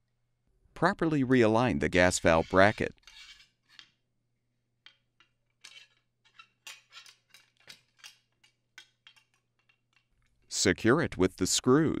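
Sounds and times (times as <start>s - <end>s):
faint metallic clinks and taps: 4.8s - 10.5s.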